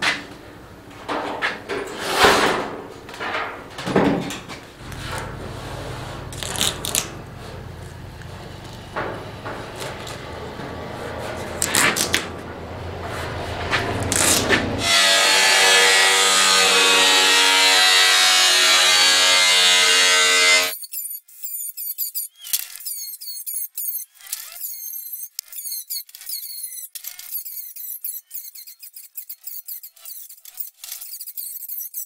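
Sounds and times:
power tool cutting metal: 4.8 - 32.0
high scraping strokes on metal: 13.0 - 32.0.

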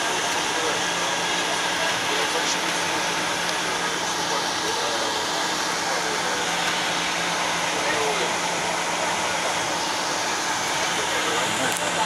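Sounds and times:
low steady engine hum: 0.0 - 12.0.

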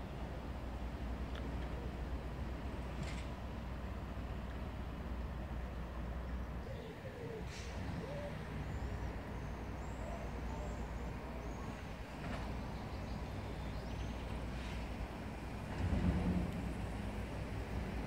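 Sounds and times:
distant traffic rumble: 0.0 - 18.0
small birds chirping: 6.5 - 15.1.

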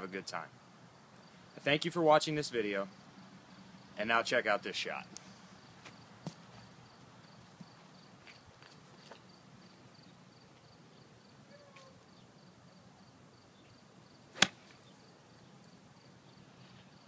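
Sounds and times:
faint high cricket chirp: 0.0 - 1.8, 2.7 - 17.0.

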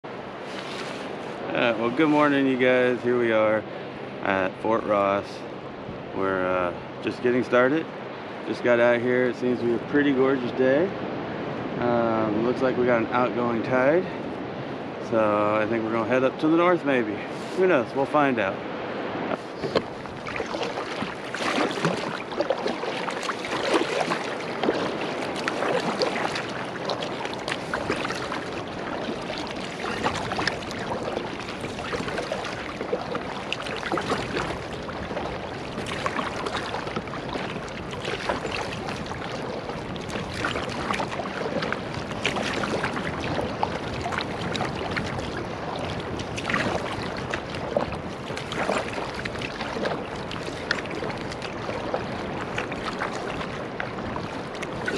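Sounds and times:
kayak paddle strokes in water: 0.1 - 3.0, 17.2 - 18.4, 19.3 - 54.9
water dripping off paddle: 19.6 - 54.9.

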